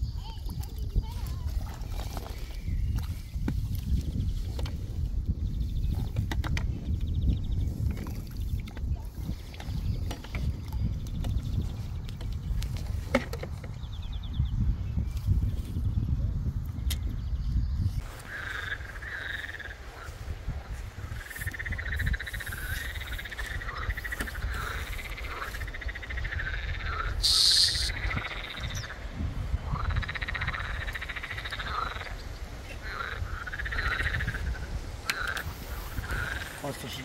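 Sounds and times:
frogs calling: 18.0 - 37.0.

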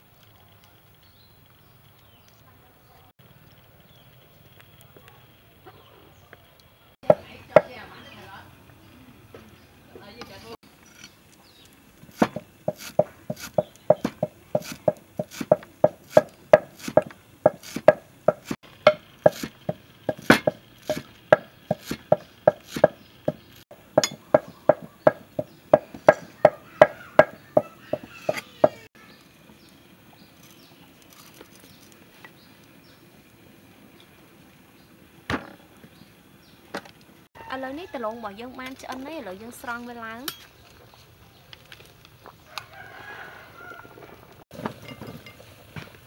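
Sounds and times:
cleaver chopping on wooden block: 12.2 - 23.4, 24.0 - 28.8.

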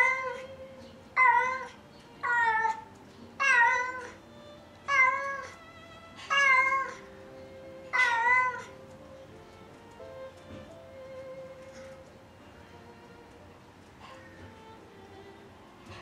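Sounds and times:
cat meowing: 0.0 - 9.2.

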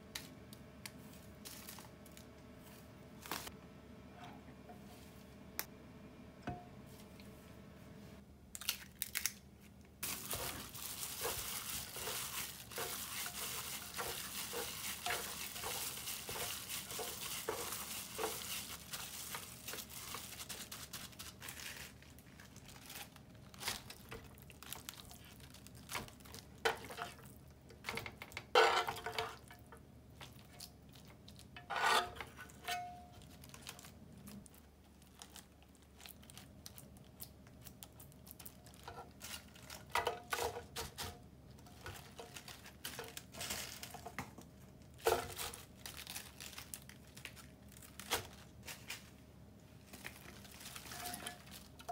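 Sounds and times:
plastic glove crinkling: 0.9 - 3.5, 8.5 - 27.5, 32.2 - 51.9
wet squishing of kneaded meat: 10.0 - 27.4, 30.1 - 31.6, 33.2 - 39.9.

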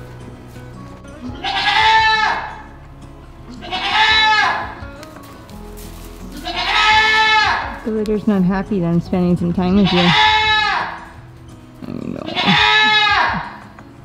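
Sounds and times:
goat bleating: 1.1 - 2.8, 3.4 - 5.2, 6.2 - 7.9, 9.6 - 13.8.

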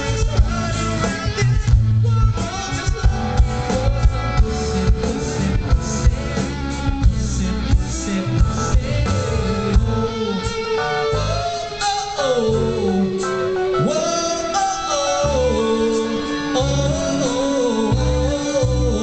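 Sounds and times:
electric guitar: 0.0 - 19.0
man singing: 0.0 - 19.0
low rhythmic beat: 0.1 - 10.3.

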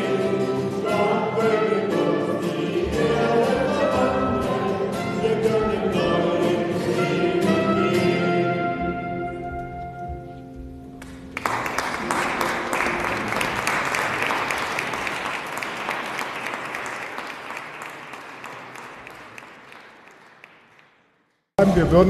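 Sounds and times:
congregation applauding: 11.0 - 21.3.

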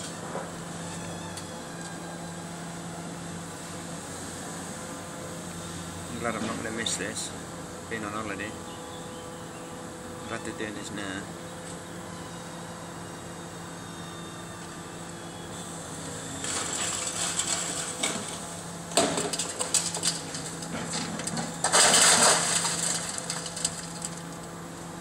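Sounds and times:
excavator engine running: 0.0 - 25.0
debris crashing down: 16.4 - 24.4
walls crunching and cracking: 19.0 - 24.4.

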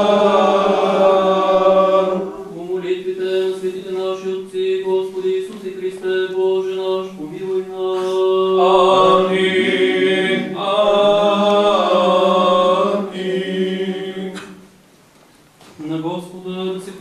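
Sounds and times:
voices chanting: 0.0 - 4.0, 8.0 - 14.6.

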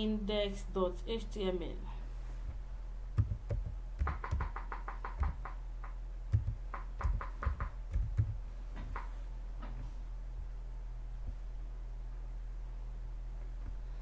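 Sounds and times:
low electrical hum: 0.0 - 14.0
keyboard keys clicking: 6.3 - 8.4.

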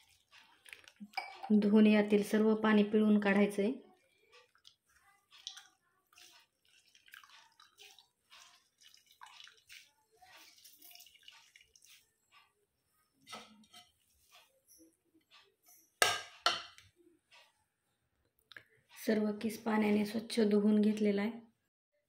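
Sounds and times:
water dripping into glass bowl: 0.1 - 1.7, 4.4 - 12.0.

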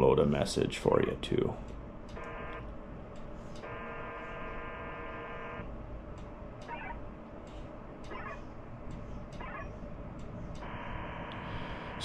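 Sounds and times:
data signal tone bursts: 3.6 - 5.7, 10.6 - 12.0
short garbled data burst: 8.1 - 8.4.

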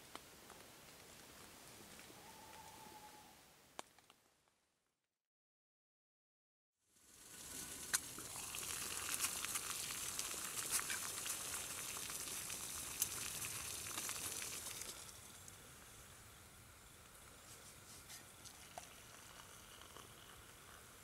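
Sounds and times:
ticks and crackles of heating pot: 0.0 - 2.6, 7.0 - 21.0
water hissing on camp stove: 6.9 - 21.0.

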